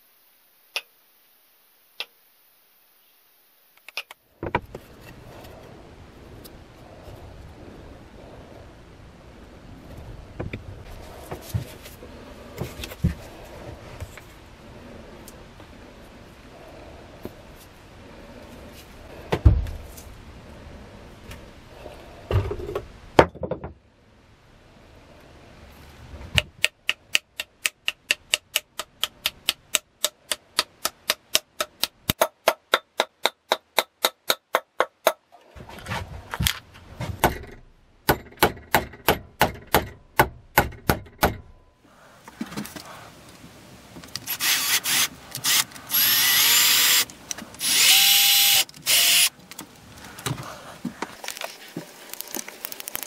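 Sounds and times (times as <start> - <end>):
power drill running: 44.3 - 49.3.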